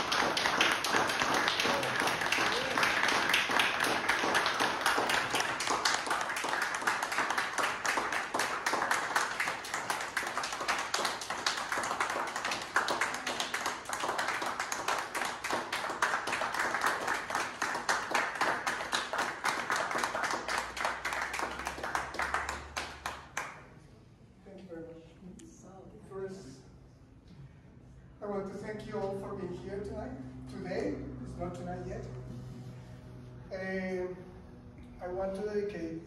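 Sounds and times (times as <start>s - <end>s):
audience applauding: 0.0s - 23.6s.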